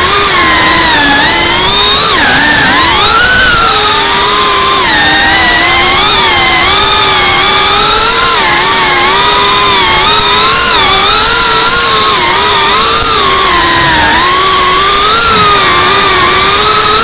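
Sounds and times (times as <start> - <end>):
drone motors whining: 0.0 - 17.0.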